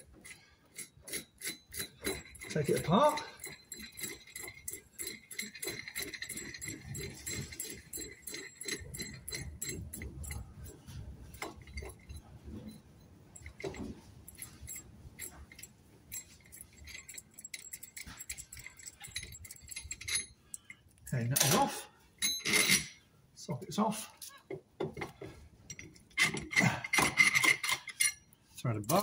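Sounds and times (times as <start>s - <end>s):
wrench clicking on metal: 0.0s - 12.2s, 13.4s - 21.6s, 25.0s - 29.0s.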